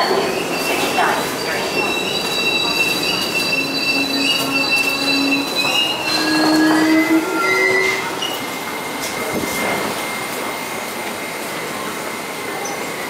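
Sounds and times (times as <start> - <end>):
high squealing tones: 0.0 - 8.6
train motors whining: 0.0 - 9.9
train rumble: 0.0 - 13.0.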